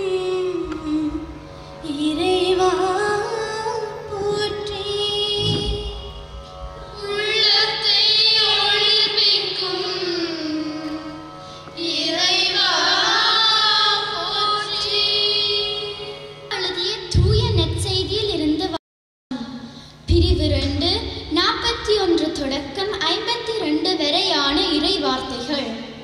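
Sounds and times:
steady held accompaniment: 0.0 - 18.8
high voice singing: 4.1 - 6.2.

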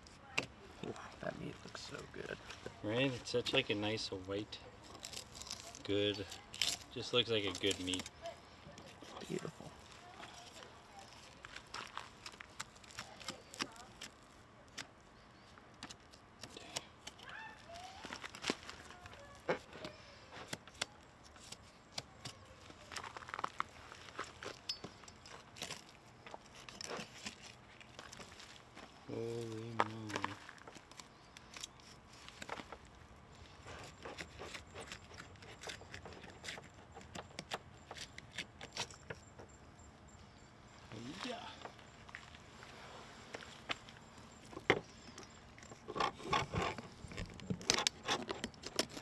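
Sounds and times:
sharp clicks and tearing: 4.8 - 8.2, 10.1 - 15.0, 15.7 - 23.7, 33.6 - 39.2, 45.2 - 49.0.

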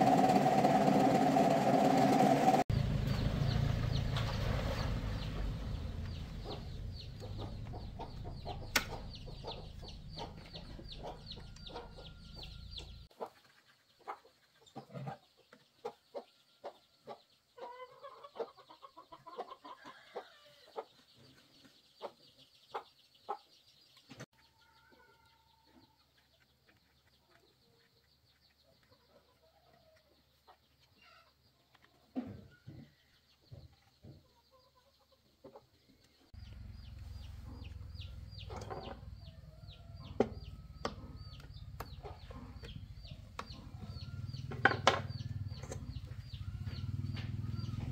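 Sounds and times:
low machine hum: 0.0 - 13.1
chickens clucking: 3.9 - 47.9.

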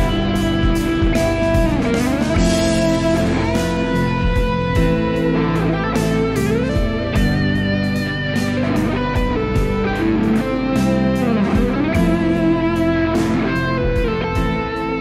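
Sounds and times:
electric guitar lead melody: 0.0 - 15.0.

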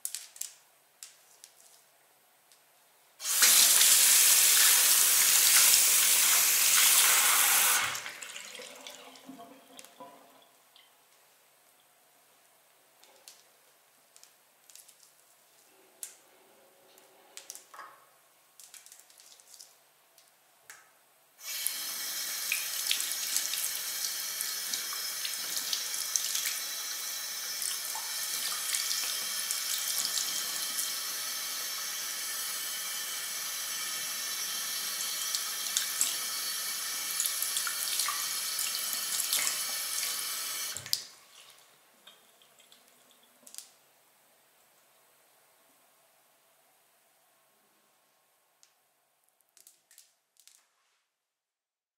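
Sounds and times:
tap water running into basin: 3.2 - 10.2, 21.4 - 41.1.

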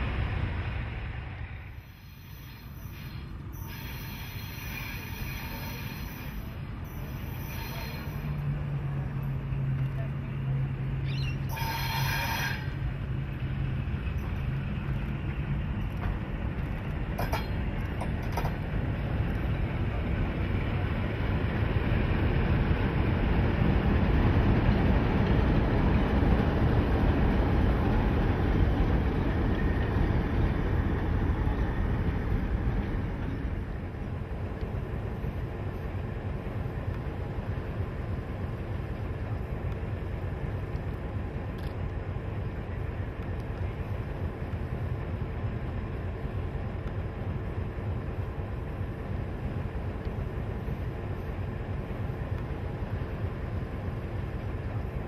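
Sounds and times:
diesel locomotive engine rumble: 0.0 - 55.0
train carriages rolling: 0.0 - 55.0.

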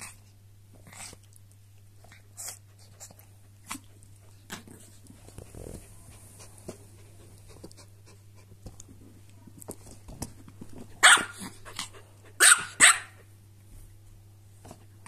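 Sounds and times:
dogs barking: 11.0 - 11.5, 12.4 - 13.2.

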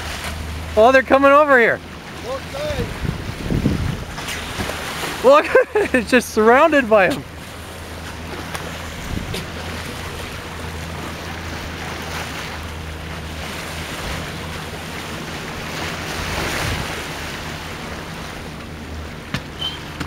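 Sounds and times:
water rushing and splashing: 0.0 - 20.0
wind buffeting microphone: 2.3 - 5.0, 8.8 - 11.0, 15.6 - 18.0.

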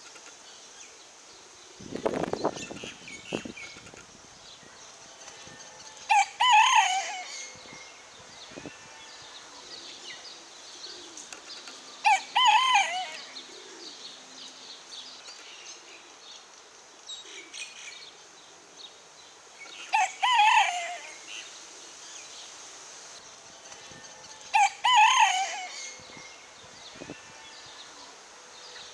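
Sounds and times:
rooster crowing: 5.4 - 7.5, 12.0 - 13.4, 19.9 - 21.3, 23.8 - 26.2, 27.0 - 28.1.

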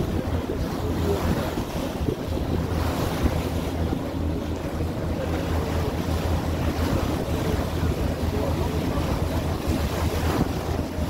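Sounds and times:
ferry engine hum: 0.0 - 11.0
water rushing along hull: 0.0 - 11.0
wind buffeting microphone: 0.0 - 11.0.

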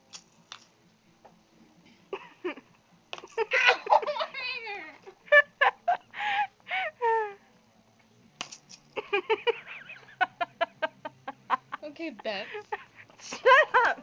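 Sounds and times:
people laughing: 3.4 - 4.6, 9.0 - 14.0.

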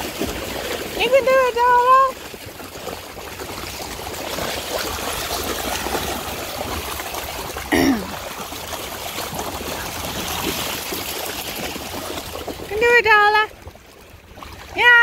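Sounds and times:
dogs splashing through water: 0.0 - 15.0.

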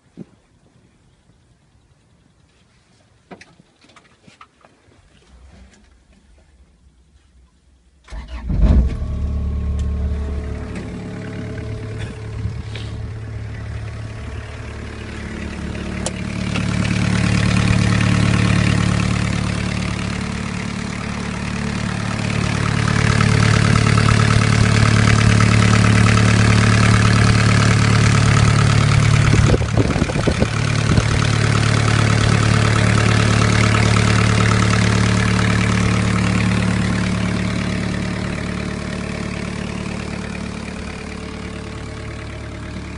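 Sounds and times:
excavator diesel engine running: 8.1 - 42.9.

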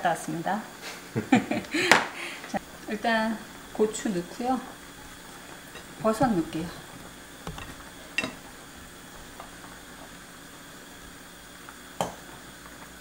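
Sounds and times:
stew simmering with low hiss: 0.0 - 13.0
sharp clicks and knocks: 5.8 - 8.4.

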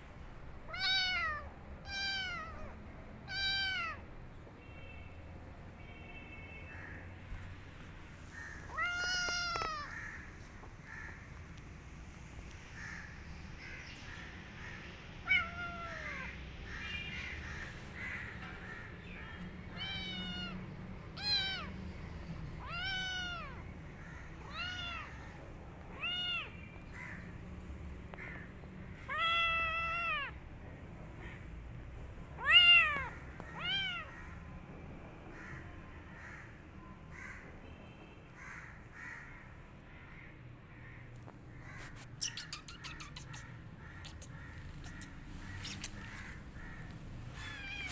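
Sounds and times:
kitten meowing: 0.7 - 4.0, 8.6 - 9.9, 15.2 - 16.3, 19.7 - 20.6, 21.2 - 21.7, 22.6 - 23.6, 24.4 - 25.2, 25.9 - 26.6, 29.0 - 30.4, 32.4 - 34.1, 44.0 - 46.4, 47.3 - 47.9.

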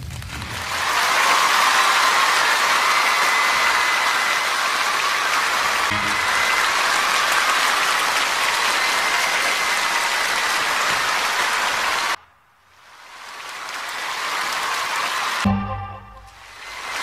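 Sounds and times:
audience applauding: 0.4 - 17.0.

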